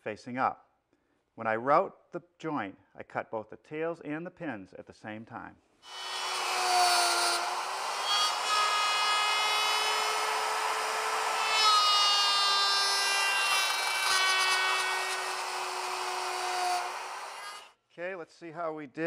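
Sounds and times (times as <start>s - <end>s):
router cutting wood: 5.9s - 17.7s.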